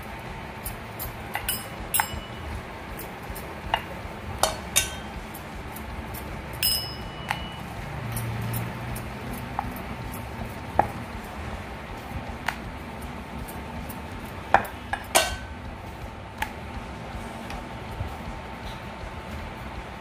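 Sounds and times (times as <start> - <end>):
metallic clinks of rolling pin: 0.6 - 5.4, 6.2 - 10.3, 14.5 - 15.5.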